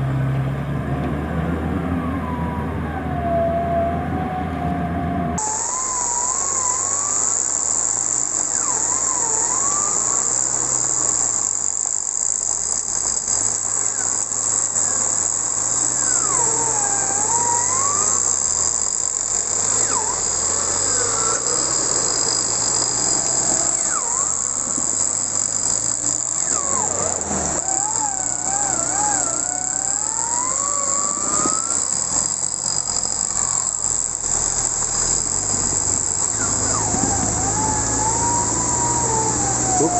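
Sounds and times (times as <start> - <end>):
car engine humming: 0.0 - 39.9
forest insects droning: 5.4 - 39.9
whistled bird calls: 19.7 - 22.4, 36.3 - 38.6.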